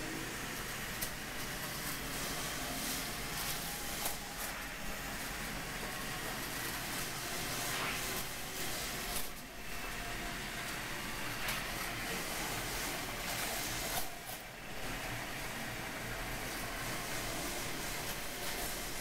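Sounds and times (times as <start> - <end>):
model roller coaster whirring: 0.0 - 19.0.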